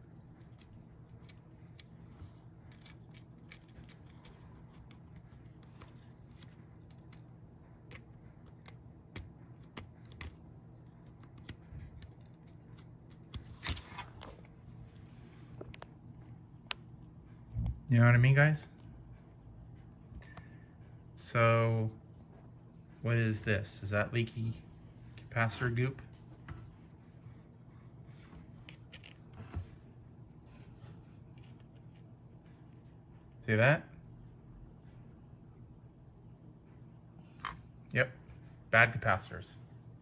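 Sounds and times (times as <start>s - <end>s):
low steady hum: 0.0s - 40.0s.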